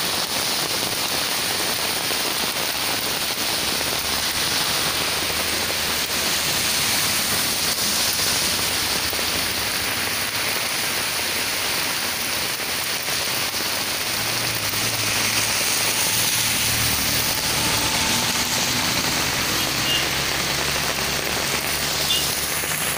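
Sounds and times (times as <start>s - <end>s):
water rushing down channel: 0.0s - 22.9s.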